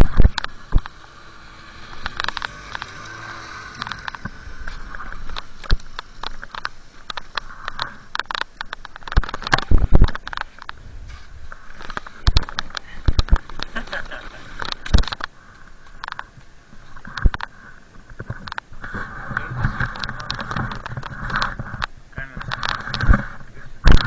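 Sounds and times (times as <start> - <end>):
snowmobile engine droning: 0.0 - 8.1, 10.8 - 15.9
clicks and scrapes of bindings: 0.0 - 24.0.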